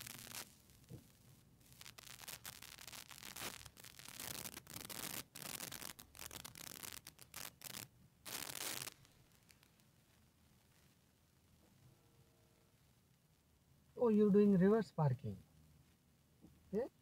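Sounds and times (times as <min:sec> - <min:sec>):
rubbing and scratching on microphone: 0:00.0 - 0:09.8.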